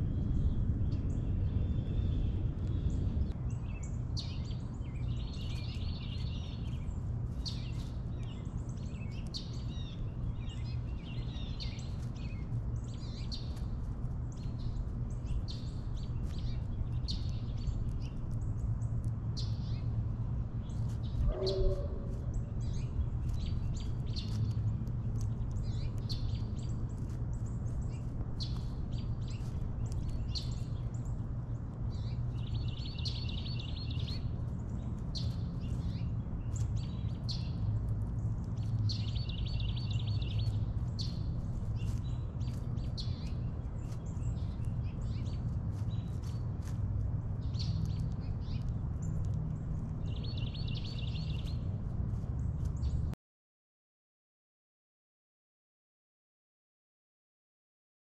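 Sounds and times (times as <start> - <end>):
low background rumble: 0.0 - 53.2
small birds chirping: 0.0 - 53.2
lower-pitched bird call: 21.2 - 22.4.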